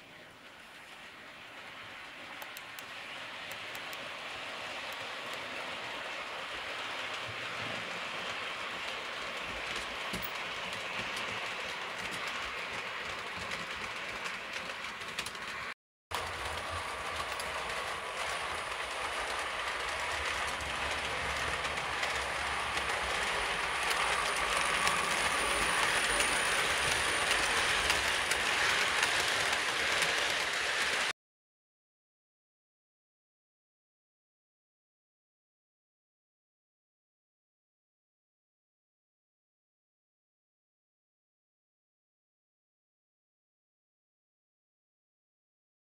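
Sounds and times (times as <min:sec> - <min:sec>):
model train wheels rattling: 0:02.3 - 0:31.1.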